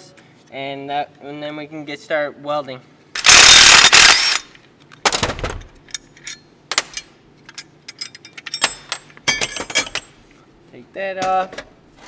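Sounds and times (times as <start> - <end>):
cordless drill spinning out bolts: 3.2 - 4.5.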